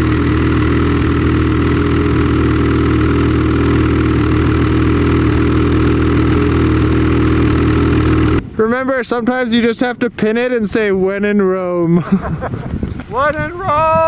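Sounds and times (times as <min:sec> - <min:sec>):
snowmobile engine running: 0:00.0 - 0:08.5.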